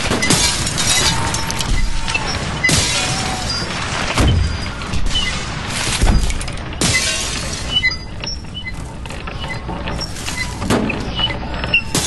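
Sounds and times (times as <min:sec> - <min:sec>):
glass breaking: 0:00.0 - 0:08.2
debris tinkling and clinking: 0:00.0 - 0:12.0.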